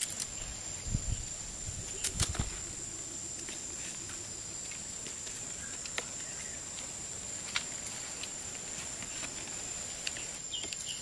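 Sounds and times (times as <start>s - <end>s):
steady high-pitched whine: 0.0s - 11.0s.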